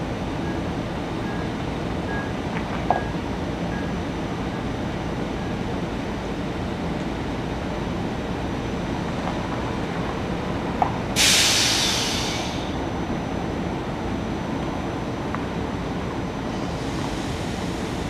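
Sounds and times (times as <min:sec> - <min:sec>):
air hissing burst: 0:11.2 - 0:12.7.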